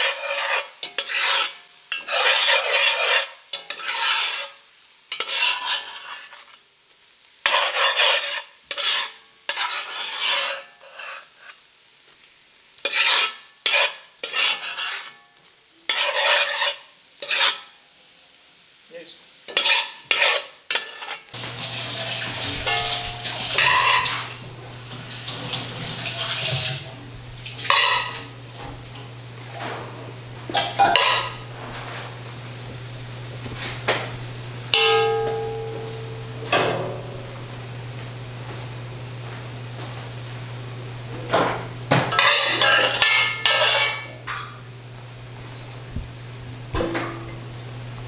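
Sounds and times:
spoon scraping ceramic bowl: 0:00.0 - 0:04.6, 0:05.2 - 0:06.5, 0:07.5 - 0:11.3, 0:12.9 - 0:15.2, 0:22.2 - 0:24.4, 0:27.7 - 0:28.4, 0:30.5 - 0:31.4, 0:42.2 - 0:44.4
spatula scraping rice in pan: 0:00.0 - 0:06.6, 0:07.4 - 0:11.7, 0:12.8 - 0:15.2, 0:15.9 - 0:17.8, 0:19.5 - 0:24.4, 0:27.6 - 0:28.4, 0:30.5 - 0:32.2, 0:42.2 - 0:44.5
steady low hum: 0:26.8 - 0:41.9.

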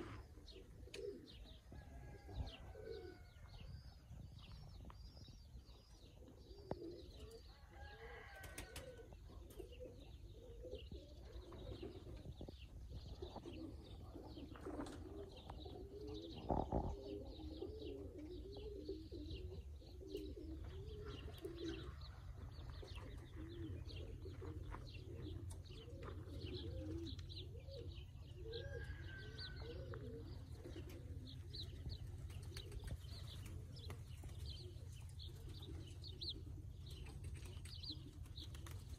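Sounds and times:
pigeons cooing: 0:00.0 - 0:38.9
small birds chirping: 0:09.2 - 0:38.9.

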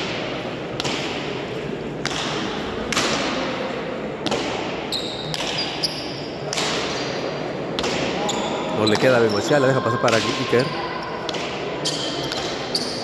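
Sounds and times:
ball cracking against wall with echo: 0:00.0 - 0:01.4, 0:02.0 - 0:03.5, 0:04.2 - 0:05.7, 0:06.4 - 0:08.4.

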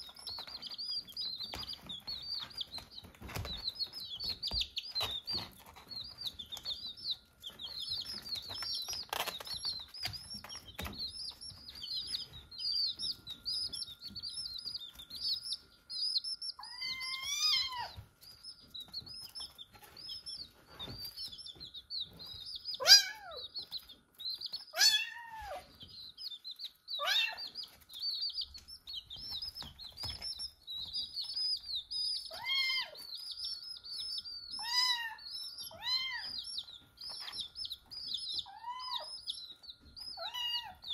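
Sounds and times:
baby chicks peeping: 0:00.0 - 0:40.9
kitten meowing: 0:16.6 - 0:18.0, 0:22.8 - 0:23.4, 0:24.7 - 0:25.7, 0:27.0 - 0:27.5, 0:32.3 - 0:33.1, 0:34.6 - 0:36.4, 0:38.4 - 0:39.2, 0:40.1 - 0:40.9.

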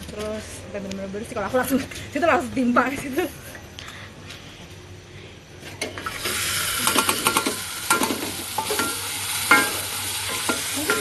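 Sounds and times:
spice paste sizzling in oil: 0:06.1 - 0:11.0.

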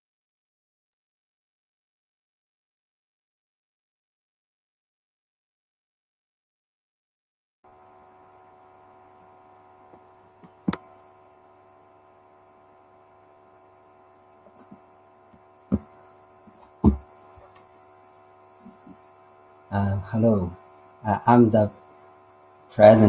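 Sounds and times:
electrical hum: 0:07.6 - 0:23.0
sharp knocks: 0:16.8 - 0:17.1.

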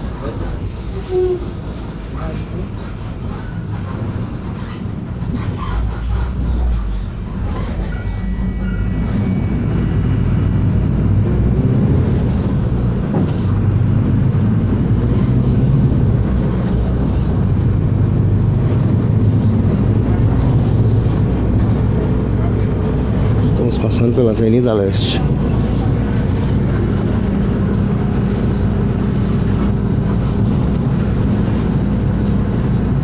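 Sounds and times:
bus engine and road rumble: 0:00.0 - 0:33.0.

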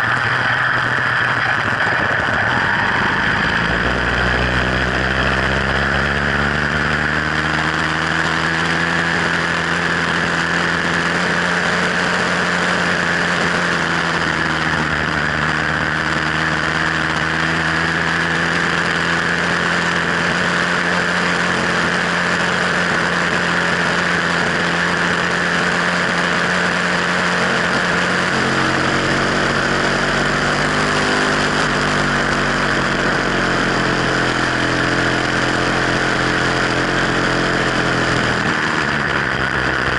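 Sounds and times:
two-stroke bicycle engine running: 0:00.0 - 0:39.9.

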